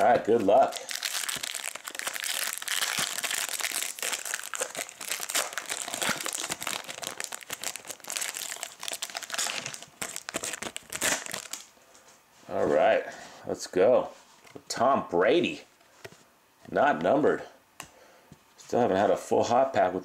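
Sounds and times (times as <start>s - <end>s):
foil wrapper crinkling: 0.0s - 11.7s.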